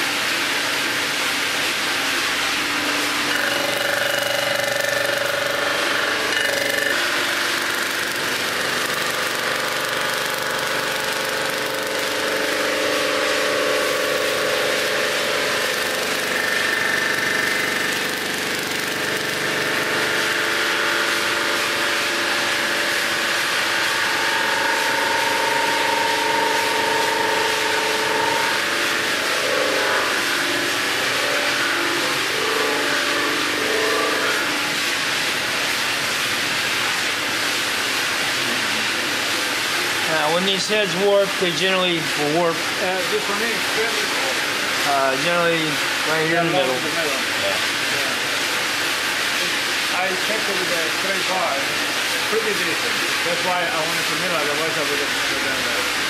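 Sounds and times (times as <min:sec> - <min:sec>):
resurfacing machine whining: 0:00.0 - 0:35.8.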